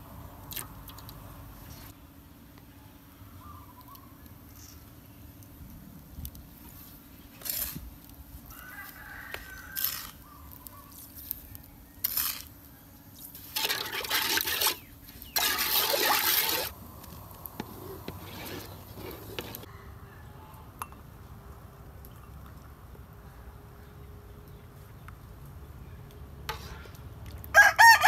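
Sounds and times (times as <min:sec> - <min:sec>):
rooster crowing: 0:08.5 - 0:10.3, 0:19.6 - 0:20.7, 0:27.5 - 0:28.0
spoon stirring in metal pot: 0:13.3 - 0:19.7.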